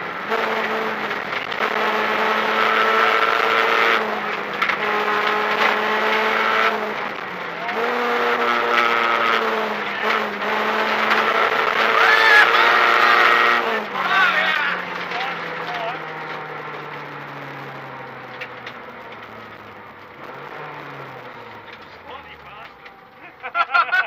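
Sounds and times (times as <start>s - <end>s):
rally car engine revving: 0.0s - 24.0s.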